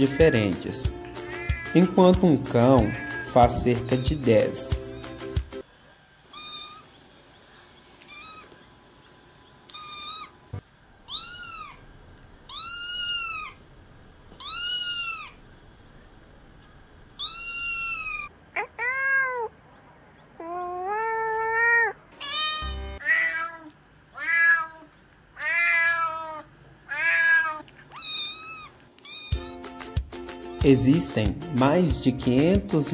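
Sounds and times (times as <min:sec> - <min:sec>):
cat meowing: 0:01.1 - 0:01.8, 0:02.7 - 0:05.2, 0:06.3 - 0:06.9, 0:08.0 - 0:08.6, 0:09.7 - 0:10.4, 0:11.0 - 0:11.9, 0:12.5 - 0:13.6, 0:14.3 - 0:15.4, 0:17.2 - 0:19.6, 0:20.4 - 0:29.6.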